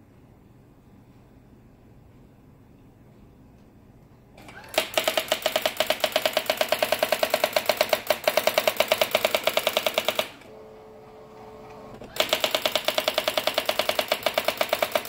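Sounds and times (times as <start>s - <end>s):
steady low hum: 0.0s - 4.7s
typewriter print-wheel clatter: 4.4s - 10.5s, 11.7s - 15.0s.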